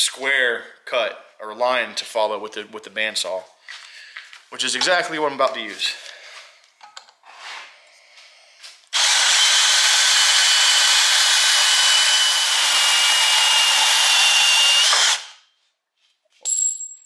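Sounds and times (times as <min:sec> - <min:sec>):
bandsaw cutting steel: 0:09.0 - 0:15.4.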